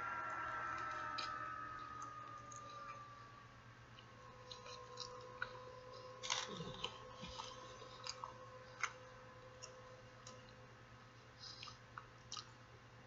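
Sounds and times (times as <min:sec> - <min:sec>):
faint steady hum: 0:00.0 - 0:13.0
wet chewing and mouth smacks: 0:11.4 - 0:12.6.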